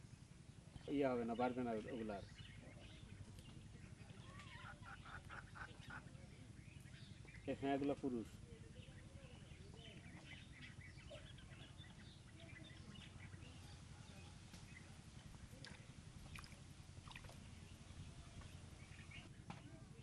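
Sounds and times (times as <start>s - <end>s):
faint low rumble: 0.0s - 20.0s
faint chirps and clicks: 1.8s - 5.7s, 8.8s - 19.7s.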